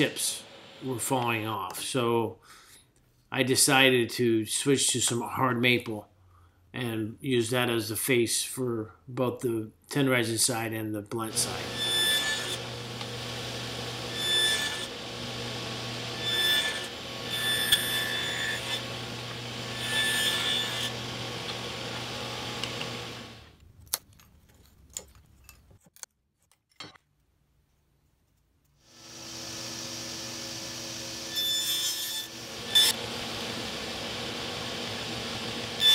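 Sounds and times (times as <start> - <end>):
table saw cutting wood: 0.0 - 1.3, 11.3 - 23.6, 28.9 - 35.9.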